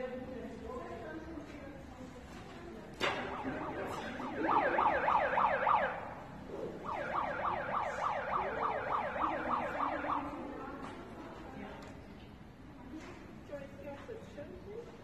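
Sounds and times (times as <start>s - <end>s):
electronic siren yelp: 3.0s - 10.4s.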